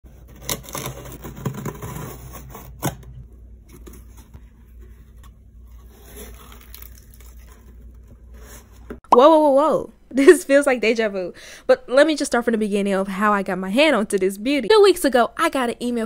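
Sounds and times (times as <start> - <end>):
box cutter slicing tape: 0.2 - 3.1.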